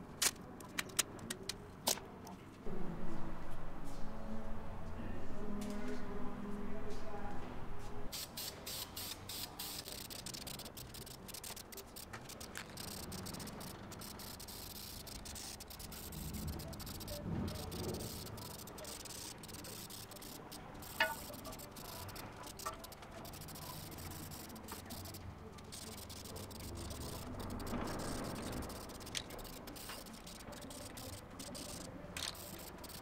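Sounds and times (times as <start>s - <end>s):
spray can hissing in bursts: 8.1s - 33.0s.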